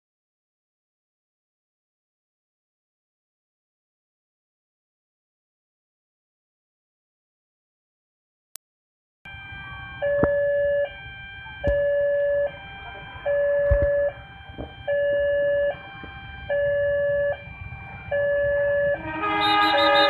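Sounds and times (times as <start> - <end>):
level crossing alarm two-tone signal: 9.3 - 20.0
low traffic noise: 9.3 - 20.0.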